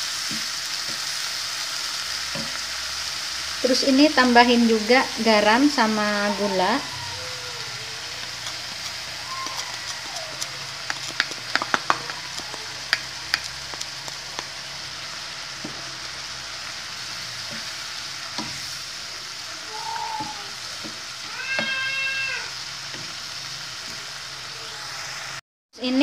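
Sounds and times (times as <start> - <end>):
filling sizzling in oil: 0.0 - 25.4
spatula clicks and taps: 10.3 - 14.5.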